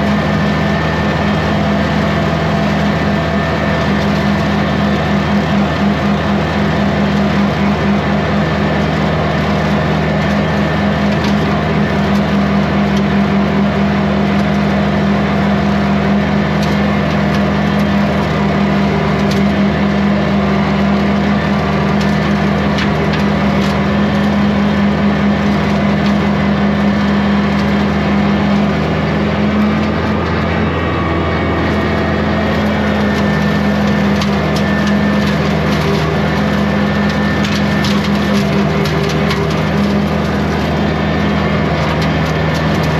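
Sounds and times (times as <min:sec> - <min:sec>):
diesel tractor engine running: 0:00.0 - 0:42.9
snaps and cracks of brush: 0:33.0 - 0:41.0.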